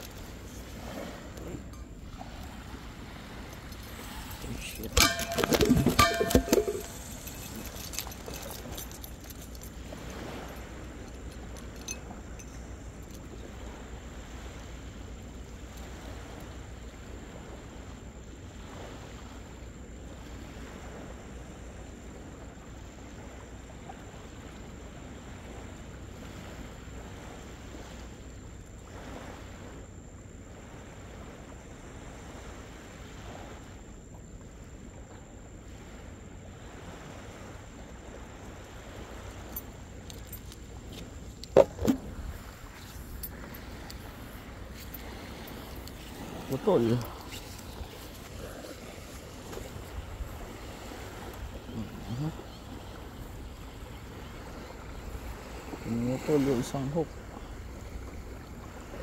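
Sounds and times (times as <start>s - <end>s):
sea washing on beach: 0.0s - 33.8s, 35.6s - 59.0s
surf: 0.0s - 59.0s
wind: 0.0s - 59.0s
wind buffeting microphone: 36.9s - 56.4s.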